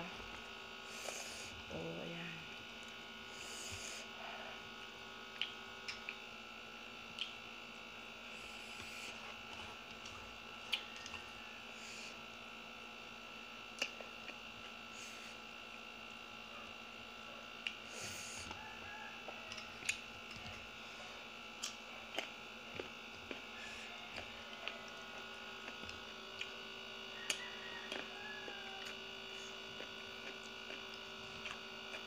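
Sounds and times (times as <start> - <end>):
steady electrical hum: 0.0 - 32.0
eating by hand: 0.3 - 1.6, 5.2 - 6.3, 7.0 - 7.5, 8.2 - 11.4, 13.7 - 15.6, 17.6 - 32.0.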